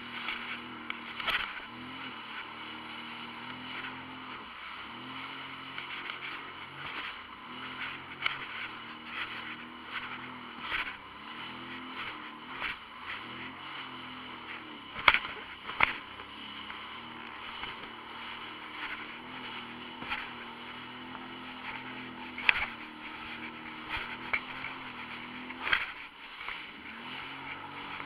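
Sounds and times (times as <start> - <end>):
low engine hum: 0.0 - 28.0
sharp clicks and knocks: 14.9 - 18.0, 21.1 - 26.6.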